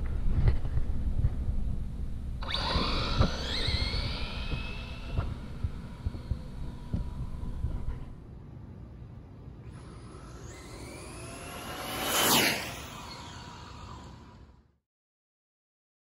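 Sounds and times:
wind rumble on microphone: 0.0 - 8.3
electric motor whine: 1.8 - 8.2, 9.6 - 14.8.

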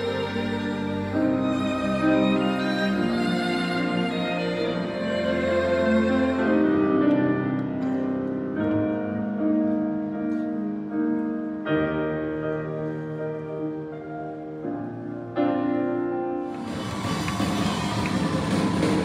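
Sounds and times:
piano and strings classical music: 0.0 - 19.0.

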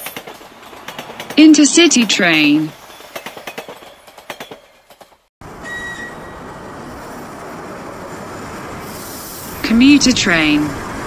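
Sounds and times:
train wheels clicking over rail joints: 0.0 - 1.4, 2.8 - 5.3
train rumble: 0.0 - 11.0
brief high tone: 5.6 - 6.5.

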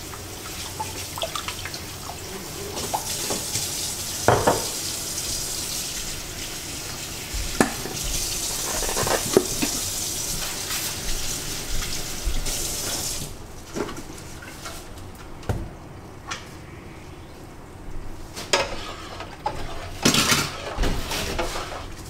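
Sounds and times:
gas burner hissing: 1.7 - 13.5.

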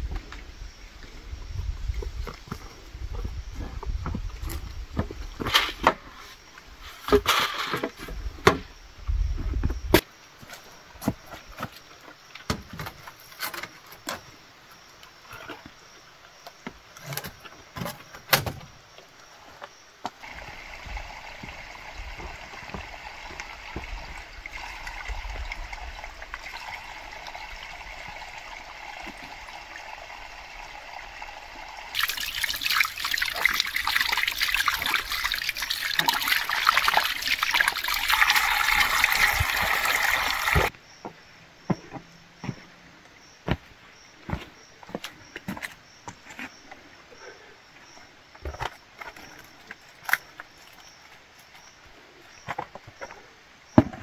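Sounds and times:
water splashing onto muddy ground: 31.9 - 40.7.

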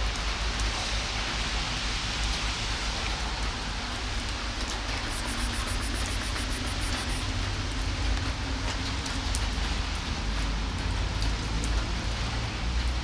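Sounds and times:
steady rain falling: 0.0 - 13.0
drops ticking close by: 5.0 - 7.4.

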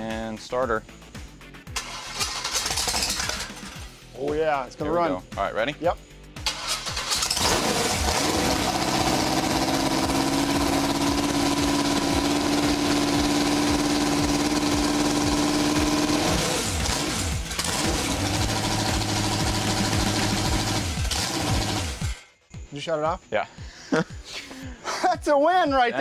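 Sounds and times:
unmuffled engine running: 7.4 - 22.2.

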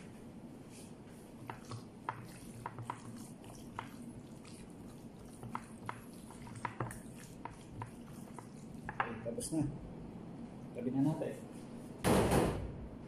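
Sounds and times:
wet squelches of hand kneading: 0.0 - 8.9
low background hum: 0.0 - 13.0.

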